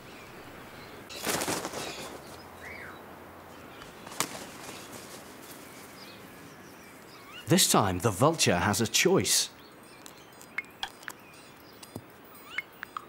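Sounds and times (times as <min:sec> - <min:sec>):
small birds chirping: 0:00.0 - 0:13.0
bird wings flapping: 0:01.1 - 0:02.4, 0:03.8 - 0:06.0.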